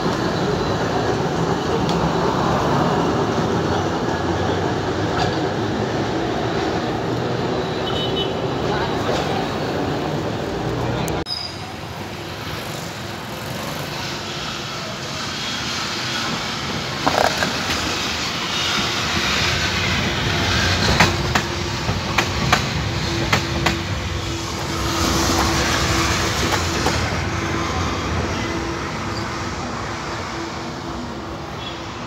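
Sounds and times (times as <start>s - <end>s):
tram passing by: 0.0s - 32.0s.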